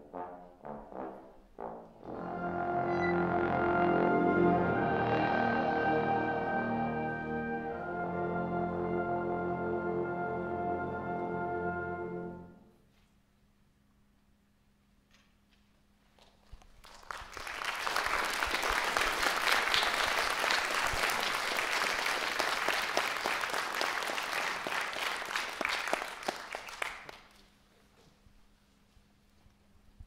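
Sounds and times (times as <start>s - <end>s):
audience applauding: 16.6s - 27.4s.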